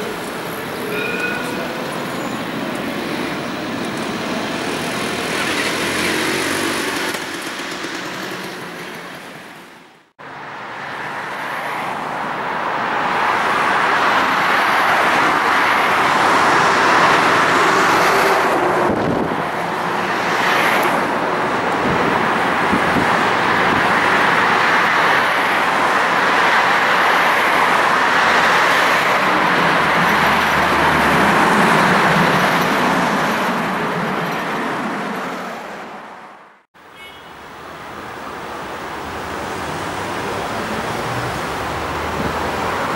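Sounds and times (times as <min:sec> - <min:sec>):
electric tram passing: 0:00.0 - 0:36.4, 0:37.5 - 0:42.9
road traffic passing: 0:00.0 - 0:42.9.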